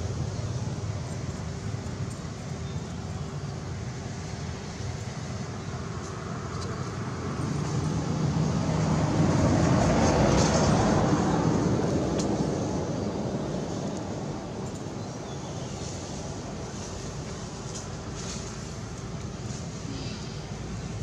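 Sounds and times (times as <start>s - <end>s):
road vehicle passing by: 0.0s - 21.0s.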